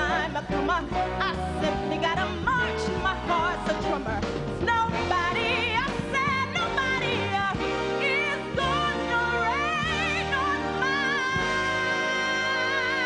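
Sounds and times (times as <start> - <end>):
live band playing: 0.0 - 13.0
woman singing with vibrato: 0.0 - 13.0.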